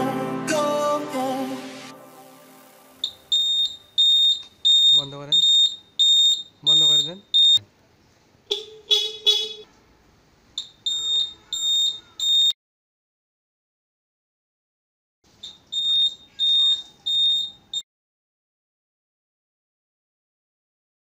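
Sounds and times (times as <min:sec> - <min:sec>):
turn-signal buzzer beeping: 0:03.0 - 0:07.6, 0:10.6 - 0:12.6, 0:15.4 - 0:17.8
motorcycle horn honking: 0:08.5 - 0:09.8, 0:11.0 - 0:12.5.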